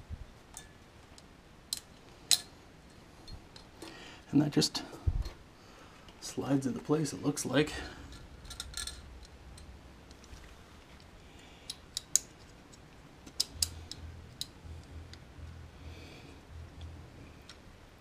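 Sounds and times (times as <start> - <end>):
faint low hum: 0.0 - 18.0
metal fittings clicking: 11.6 - 15.2.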